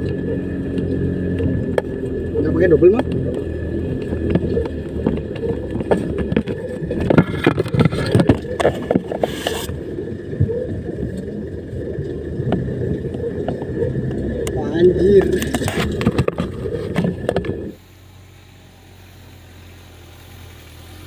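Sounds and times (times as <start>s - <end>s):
pickup engine under heavy load: 0.0s - 21.0s
body knocks and rattles: 2.9s - 9.2s.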